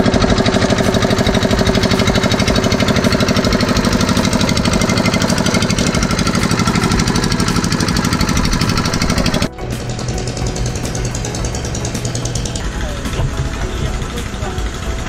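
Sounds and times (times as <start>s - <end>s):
winch engine knocking: 0.0s - 15.0s.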